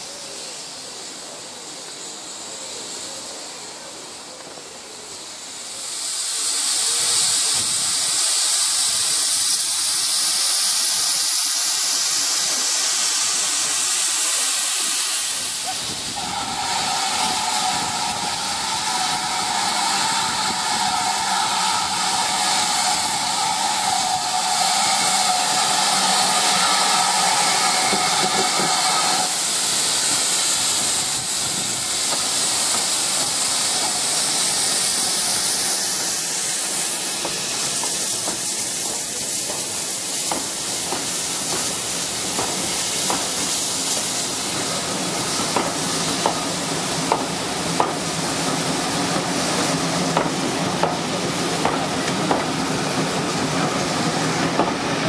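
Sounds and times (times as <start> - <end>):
steam locomotive hissing: 0.0 - 55.0
train wheels clicking over rail joints: 16.8 - 55.0.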